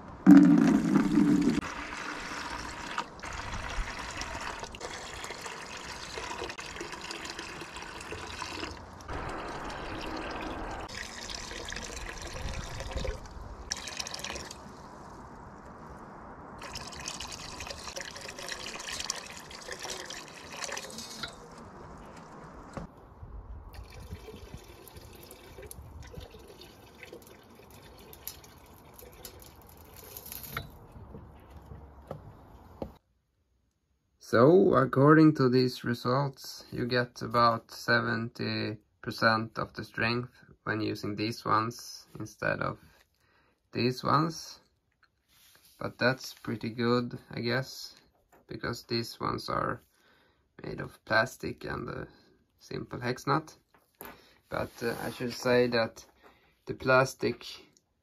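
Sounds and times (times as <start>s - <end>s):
water pouring into plastic bucket: 0.3s - 14.8s, 16.6s - 22.3s, 23.7s - 30.6s.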